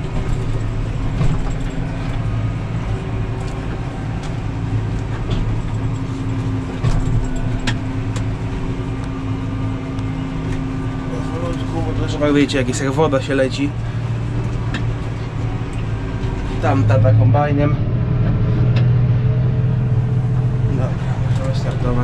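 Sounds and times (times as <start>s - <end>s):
tractor engine running under load: 0.0s - 22.0s.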